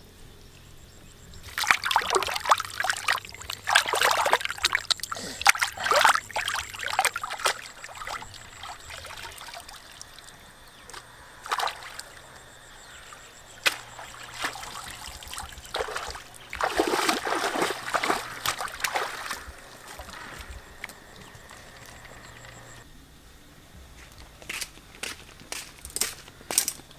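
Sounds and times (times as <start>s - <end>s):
hands splashing in water: 1.4s - 10.3s, 10.9s - 12.2s, 13.6s - 22.8s.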